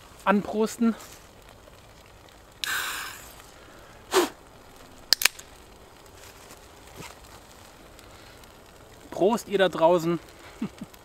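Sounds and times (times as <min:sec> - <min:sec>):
beer can hiss opening: 0:02.6 - 0:03.3, 0:04.1 - 0:04.4.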